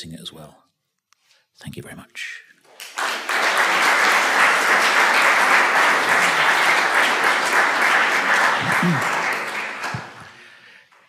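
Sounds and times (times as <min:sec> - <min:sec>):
audience applauding: 0:02.7 - 0:11.0.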